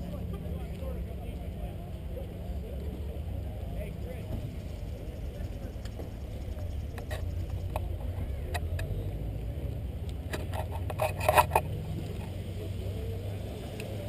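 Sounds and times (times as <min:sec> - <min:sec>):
camera handling rumble: 0:10.1 - 0:12.4
rattling clicks: 0:10.3 - 0:12.3.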